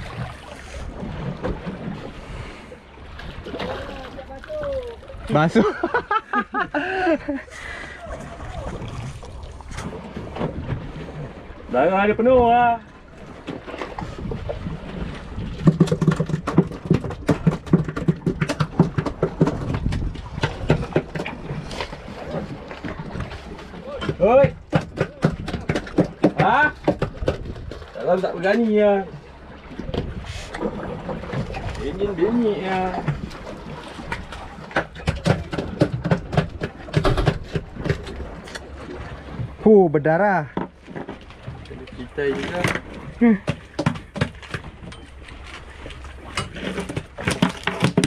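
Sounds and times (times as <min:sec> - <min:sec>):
low rumble of wind and water: 0:00.0 - 0:48.0
fish slapping on deck: 0:15.5 - 0:27.9, 0:32.9 - 0:38.9, 0:42.3 - 0:48.0.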